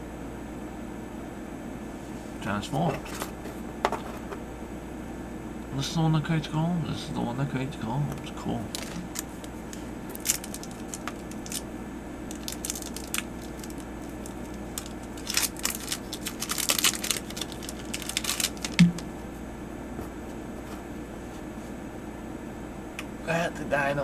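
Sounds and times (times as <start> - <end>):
cards thumping: 8.6 - 11.6, 12.3 - 19.1
foil wrapper crinkling and tearing: 8.6 - 11.7, 12.3 - 19.0.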